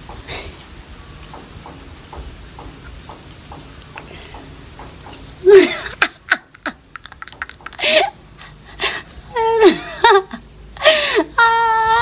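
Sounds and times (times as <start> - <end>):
woman laughing: 5.4 - 12.0.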